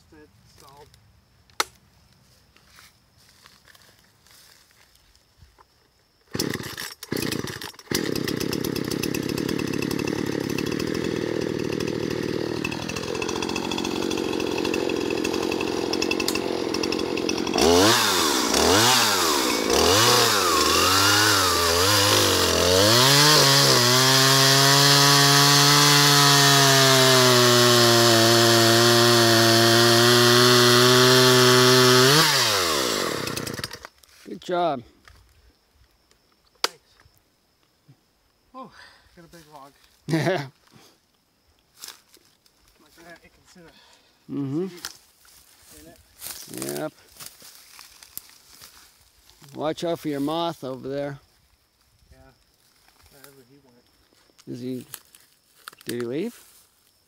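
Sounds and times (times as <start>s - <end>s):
chainsaw cutting log: 6.3s - 33.9s
chainsaw idling and revving: 6.3s - 33.9s
chainsaw pull cord starting: 6.3s - 33.9s.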